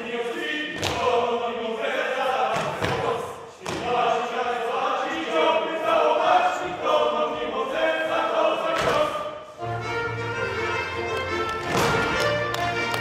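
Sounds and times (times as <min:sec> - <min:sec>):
group of voices singing folk song: 0:00.0 - 0:13.0
folk band with low bass: 0:09.6 - 0:13.0.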